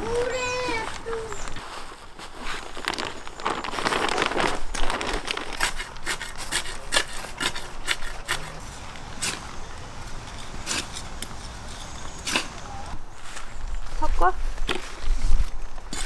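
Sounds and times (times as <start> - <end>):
shovel scraping through soil: 0.2 - 9.5, 10.2 - 13.6, 14.6 - 16.0
compost pouring from bag: 0.3 - 6.0.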